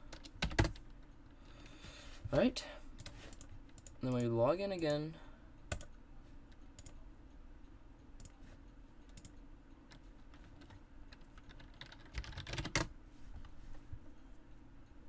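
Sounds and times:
keyboard keys clicking: 9.1 - 12.9.

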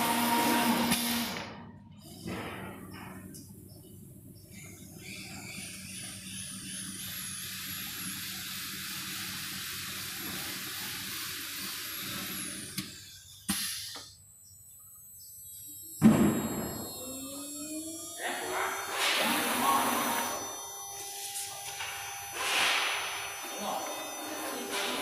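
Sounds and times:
cutting machine motor whine: 0.0 - 1.5, 4.6 - 25.0.

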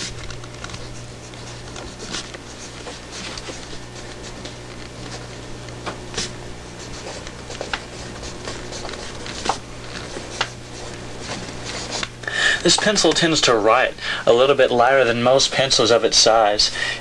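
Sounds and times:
pencil scratching on paper: 0.0 - 5.5, 6.1 - 13.0
steady low hum: 0.0 - 17.0.

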